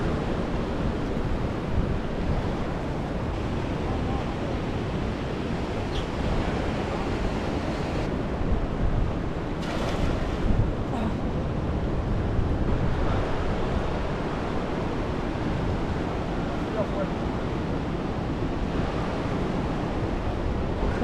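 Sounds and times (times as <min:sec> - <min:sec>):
sea waves washing: 0:00.0 - 0:08.1
wind buffeting microphone: 0:00.0 - 0:21.0.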